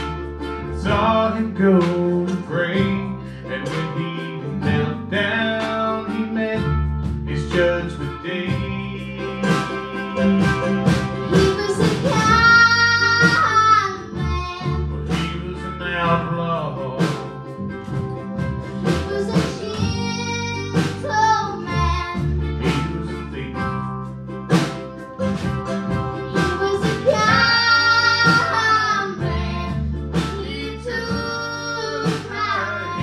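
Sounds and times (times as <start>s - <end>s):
acoustic string band playing: 0.0s - 33.0s
drum steady beat: 6.6s - 16.3s, 17.0s - 33.0s
woman singing wordless notes: 11.2s - 14.8s, 26.3s - 33.0s.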